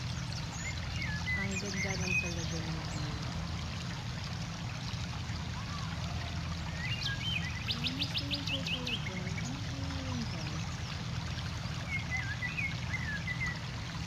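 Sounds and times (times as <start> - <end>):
birds calling: 0.0 - 3.4, 6.6 - 14.0.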